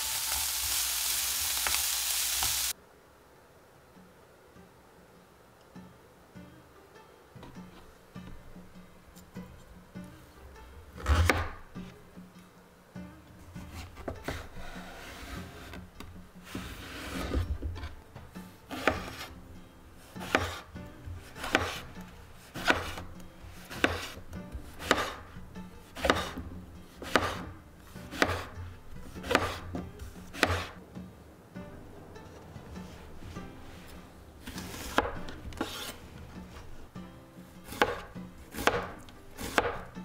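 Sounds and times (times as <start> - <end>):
knife cutting through eggplant: 18.7 - 19.4, 20.1 - 25.3, 25.9 - 30.8, 34.4 - 36.0, 37.6 - 39.9.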